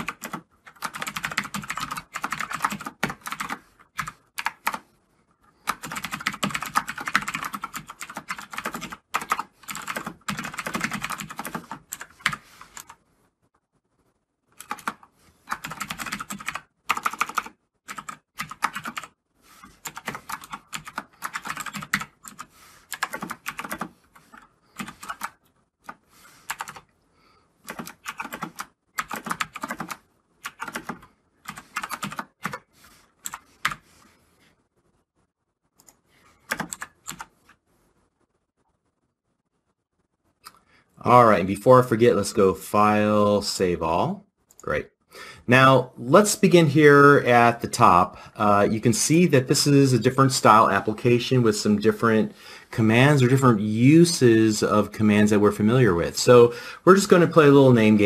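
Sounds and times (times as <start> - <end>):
fast typing on keyboard: 0.0 - 4.9, 5.6 - 13.0, 14.6 - 26.9, 27.7 - 33.8, 36.4 - 37.3.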